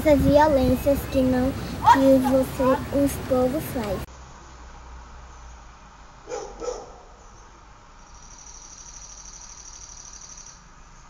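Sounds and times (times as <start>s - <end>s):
dog barking: 1.8s - 2.9s, 6.2s - 7.2s
pulsing insect trill: 8.0s - 10.6s.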